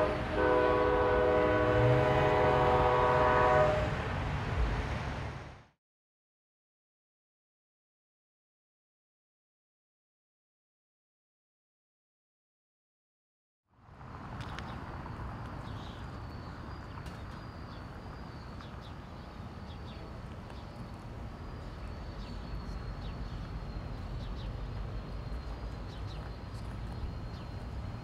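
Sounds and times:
diesel locomotive engine rumbling: 0.0 - 5.7, 13.8 - 28.0
birds chirping: 14.4 - 28.0.

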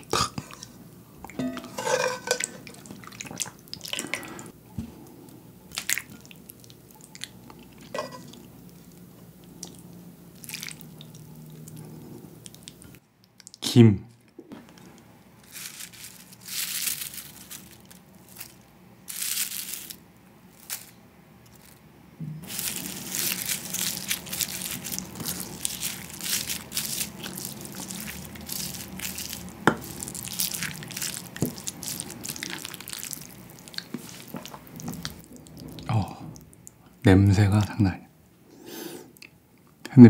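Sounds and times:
spoon clinking on bowl: 1.3 - 2.6
spoon stirring and scraping bowl: 1.3 - 2.8, 7.9 - 8.4
dried seaweed flakes crinkling: 14.7 - 21.8, 22.4 - 35.4.

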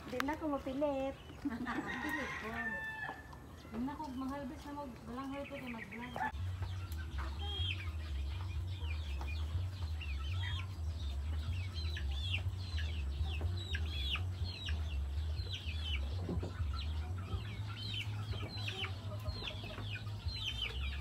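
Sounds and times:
chicks peeping: 0.0 - 21.0.

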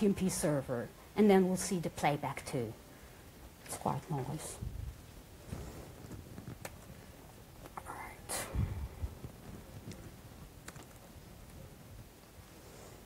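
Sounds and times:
whispered mutter and breath: 7.8 - 9.2
faint laptop clicks: 9.4 - 11.6.

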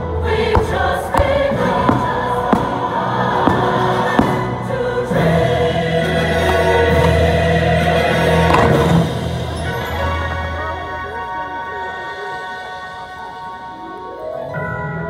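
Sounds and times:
choir singing: 0.0 - 13.9
orchestral music: 0.0 - 15.0
firework bangs: 0.4 - 5.6, 8.2 - 9.4.

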